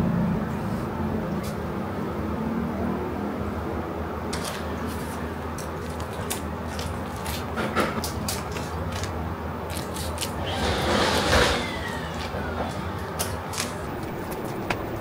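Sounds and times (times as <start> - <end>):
steady low hum: 13.7 - 15.0.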